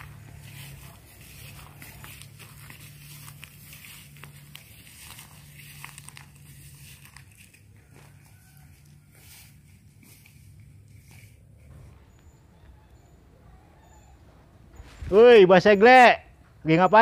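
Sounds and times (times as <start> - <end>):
faint crackling rustling: 0.0 - 12.5.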